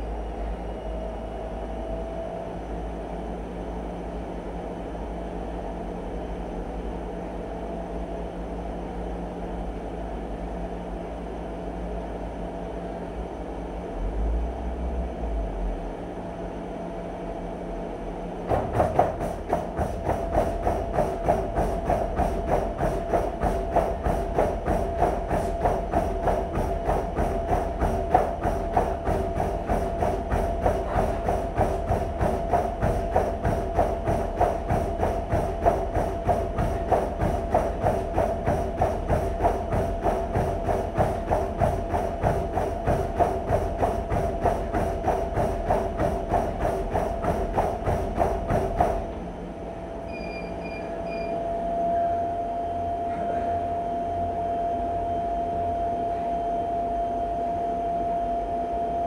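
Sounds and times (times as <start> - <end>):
footfalls pounding treadmill belt: 18.3 - 49.7
treadmill motor whining: 18.3 - 59.0.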